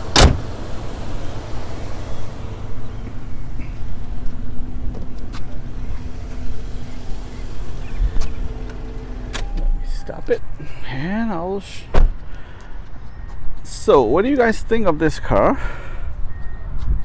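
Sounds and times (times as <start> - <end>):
car engine idling: 0.0 - 11.2.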